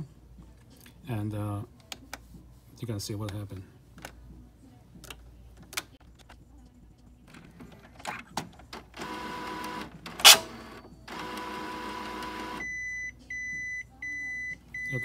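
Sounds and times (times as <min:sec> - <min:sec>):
printer carriage motor scratching: 0:09.0 - 0:12.6.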